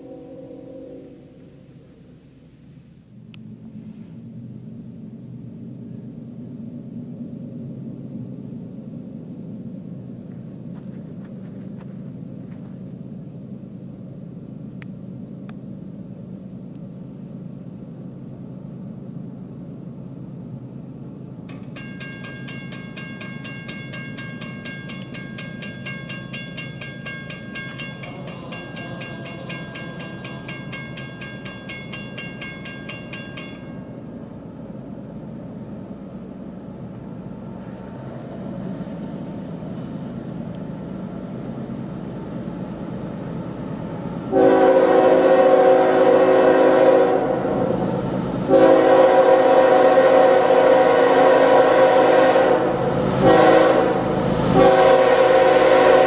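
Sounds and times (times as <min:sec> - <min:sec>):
diesel train rumble: 0:00.0 - 0:56.0
railroad crossing bell ringing: 0:21.5 - 0:34.1.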